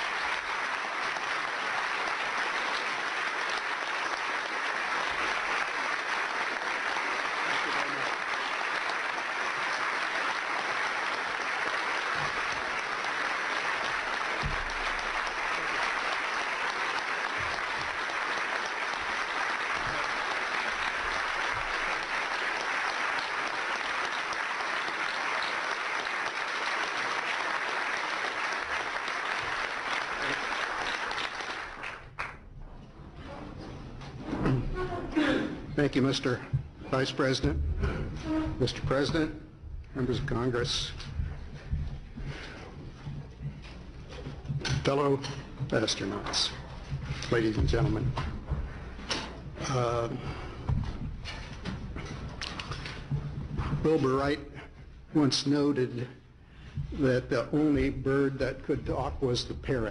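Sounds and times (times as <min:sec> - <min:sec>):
large audience applauding: 0:00.0 - 0:32.6, 0:45.7 - 0:54.5.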